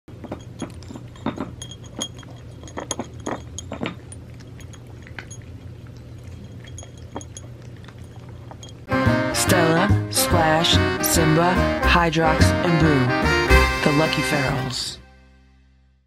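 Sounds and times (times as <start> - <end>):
low steady hum: 0.1 - 13.2
treats clinking on ceramic dish: 0.2 - 8.9
cat crunching dry treats: 2.2 - 8.8.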